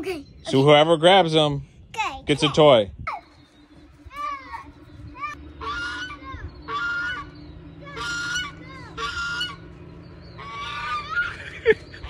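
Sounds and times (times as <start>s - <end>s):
goose honking: 5.5s - 9.8s, 10.4s - 11.8s
quiet goose calls: 5.6s - 9.7s, 10.4s - 11.4s.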